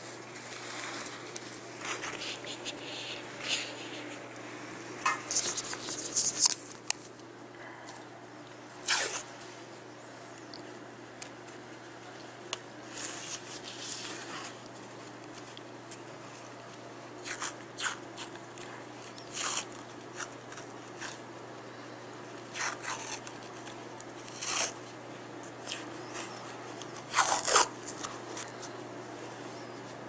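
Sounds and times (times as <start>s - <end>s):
adhesive tape and paper rustling: 5.0s - 7.2s, 8.8s - 9.2s, 17.2s - 18.4s, 19.0s - 21.2s, 22.5s - 24.8s, 25.6s - 28.7s.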